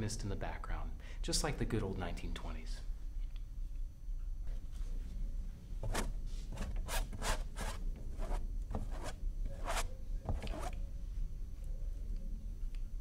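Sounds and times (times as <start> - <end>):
paintbrush scrubbing on canvas: 5.9 - 10.8.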